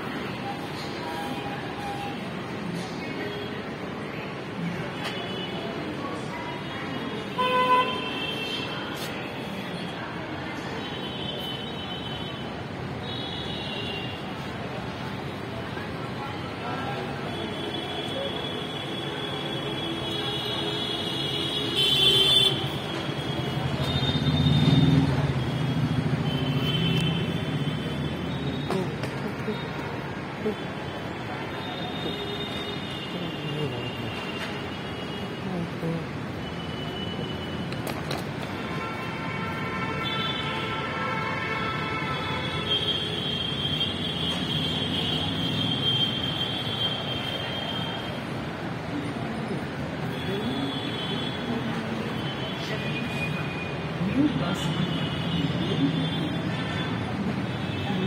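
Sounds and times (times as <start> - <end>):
station background din: 0.0 - 39.1.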